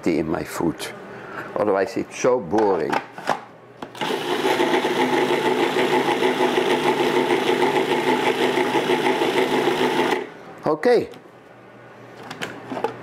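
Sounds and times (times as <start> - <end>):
food processor chopping: 4.0 - 10.3.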